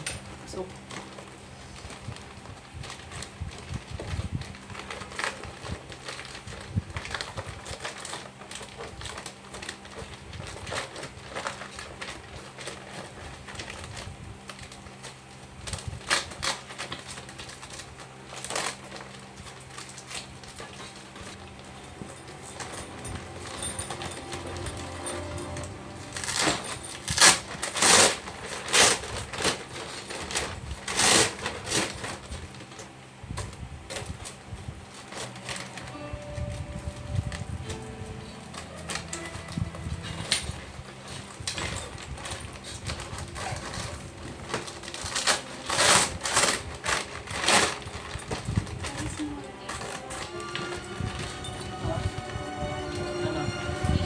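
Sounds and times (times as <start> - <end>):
foil bag rustling and scraping: 0.0 - 54.0.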